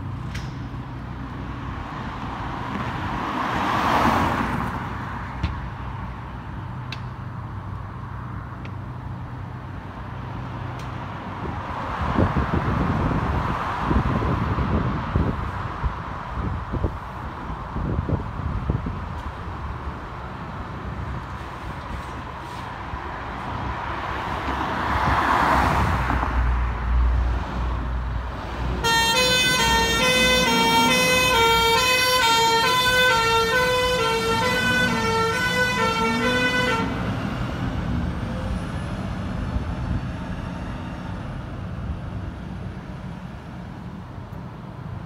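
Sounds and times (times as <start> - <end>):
fire engine diesel pulling away: 28.3 - 44.2
two-tone siren: 28.8 - 37.0.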